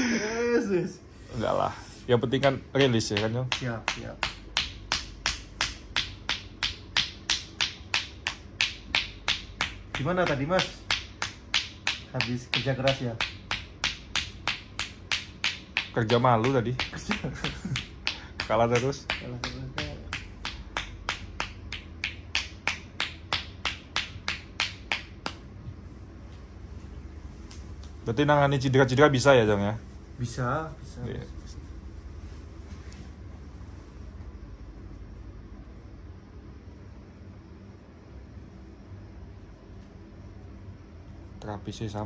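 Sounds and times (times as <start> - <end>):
hands slapping on leg: 2.3 - 25.5.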